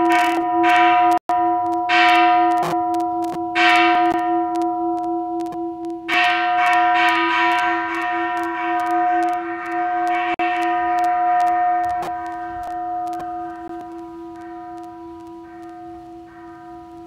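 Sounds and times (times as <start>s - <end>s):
metal bells struck: 0.0s - 5.3s, 6.1s - 17.0s.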